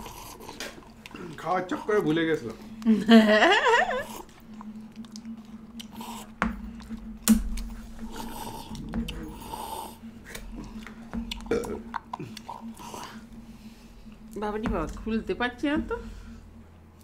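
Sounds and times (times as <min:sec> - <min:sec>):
mouth eating sounds: 0:00.0 - 0:02.1, 0:04.0 - 0:13.4
low steady hum: 0:00.0 - 0:17.0.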